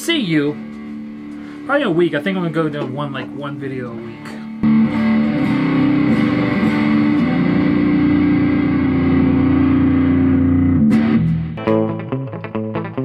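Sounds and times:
distorted electric guitar: 0.0 - 13.0.

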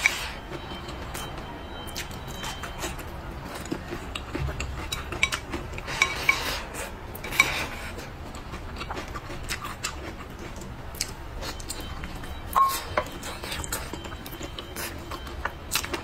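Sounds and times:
chopsticks scraping ceramic bowl: 3.9 - 8.1
wet biting and chewing: 6.7 - 16.0.

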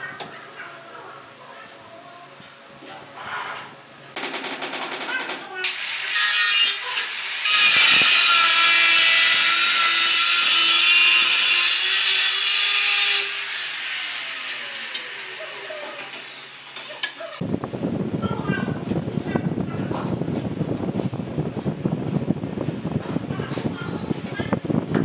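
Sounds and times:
angle grinder cutting tile: 5.6 - 17.4.

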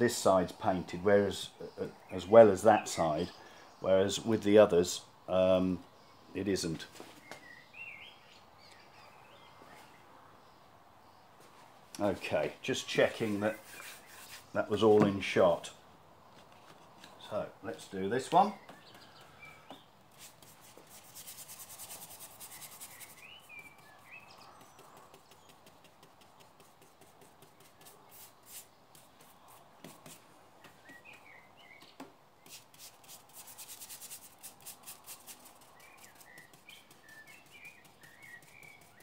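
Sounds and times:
paintbrush scrubbing on board: 13.2 - 14.5, 20.1 - 30.2, 32.4 - 39.0
faint bird chirps: 17.2 - 20.0, 20.9 - 29.7, 30.6 - 32.6, 33.8 - 39.0.

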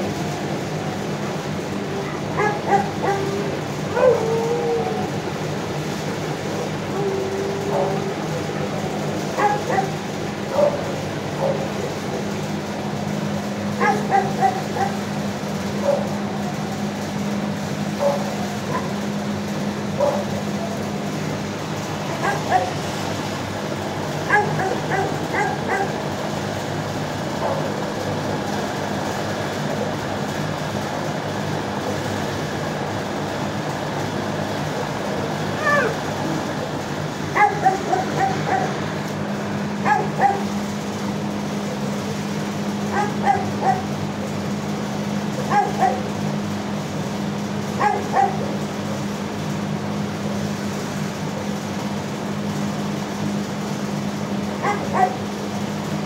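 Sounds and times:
steady low hum: 0.0 - 56.0
dogs barking: 1.8 - 5.3, 6.4 - 12.3, 13.6 - 16.8, 17.9 - 20.9, 21.9 - 23.1, 24.1 - 26.3, 27.3 - 27.9, 35.5 - 36.6, 37.2 - 40.8, 42.6 - 44.1, 45.2 - 46.4, 47.7 - 48.7, 54.6 - 55.5.

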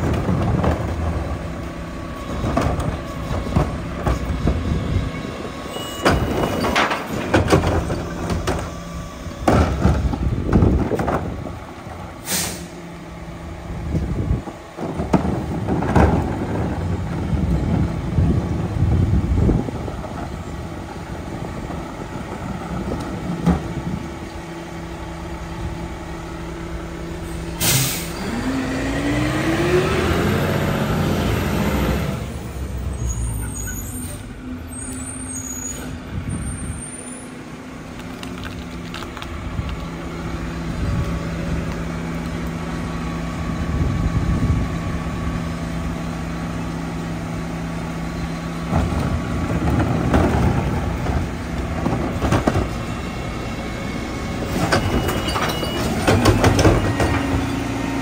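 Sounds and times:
air brake hiss: 12.2 - 12.8, 27.2 - 28.2
diesel truck engine running: 35.9 - 58.0.

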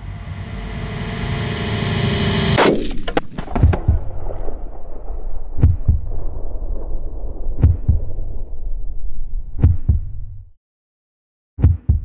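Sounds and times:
low rumble: 0.0 - 10.6
rifle shot: 2.6 - 8.6
low double thump: 3.4 - 8.8, 9.4 - 10.5
music: 11.6 - 12.0.

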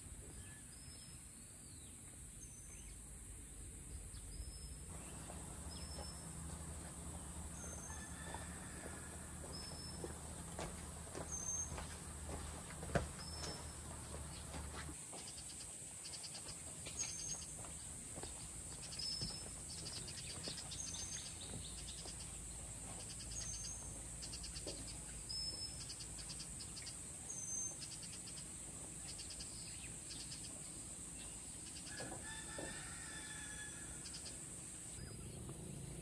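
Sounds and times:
rapid bird chirping: 9.5 - 14.9.

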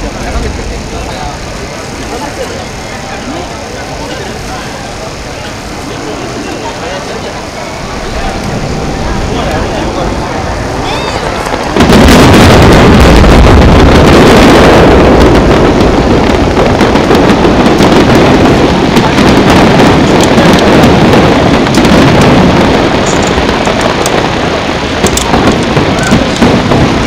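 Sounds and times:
firework shells bursting: 0.0 - 27.0.

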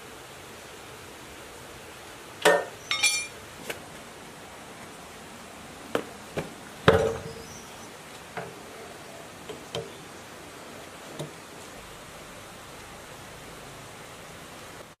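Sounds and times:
metal clanks and clinks: 2.5 - 3.4.

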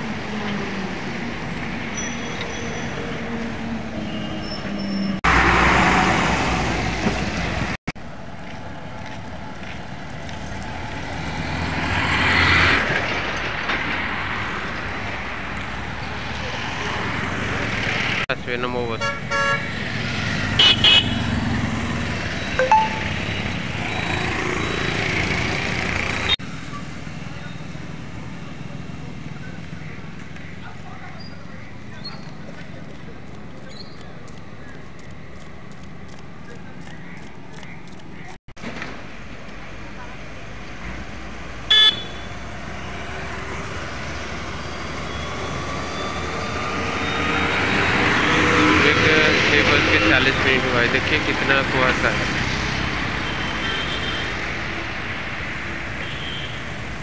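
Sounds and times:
road traffic passing: 0.0 - 57.0
vehicle horn toots: 19.0 - 19.7, 20.6 - 21.3, 41.7 - 42.4, 56.0 - 56.7
truck approaching: 19.7 - 53.3
short sharp beep: 22.4 - 23.6.

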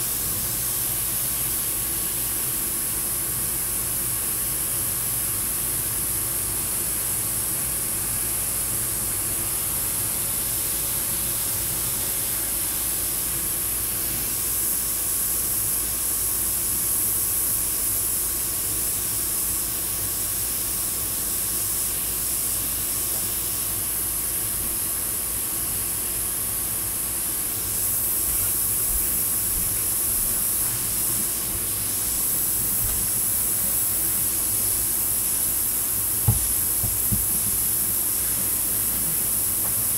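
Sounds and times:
steady low hum: 0.0 - 39.9
airbrush spraying hiss: 12.3 - 39.9.

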